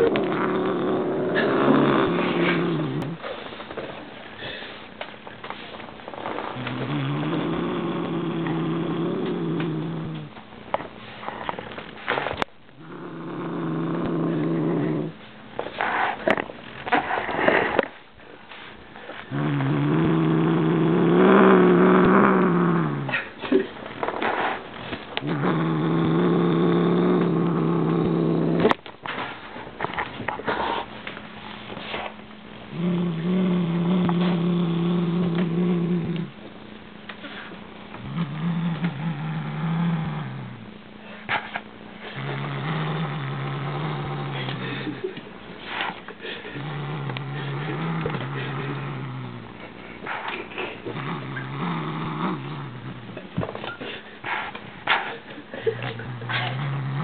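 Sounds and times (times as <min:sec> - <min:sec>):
cat growling: 0:00.0 - 0:03.2, 0:06.4 - 0:10.4, 0:12.8 - 0:15.2, 0:19.2 - 0:24.6, 0:25.2 - 0:28.8, 0:32.7 - 0:36.4, 0:37.2 - 0:53.3, 0:54.2 - 0:57.0.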